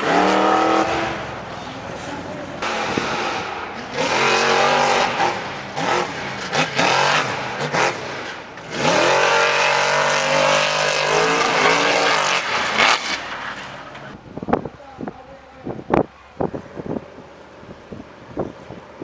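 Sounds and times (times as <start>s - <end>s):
racing engine revving: 0.0s - 14.2s.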